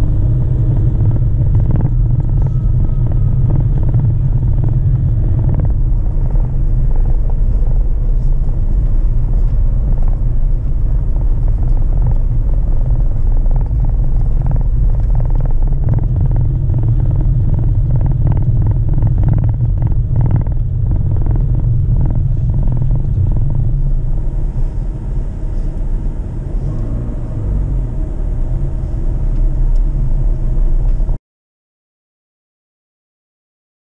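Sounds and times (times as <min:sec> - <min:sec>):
car engine and tyres rumbling on gravel: 0:00.0 - 0:31.2
car knocks and rattles over bumps: 0:00.1 - 0:25.0.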